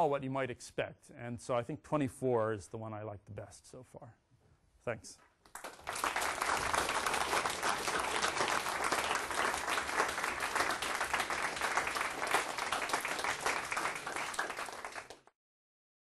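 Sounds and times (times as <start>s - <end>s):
audience applauding: 5.5s - 15.3s.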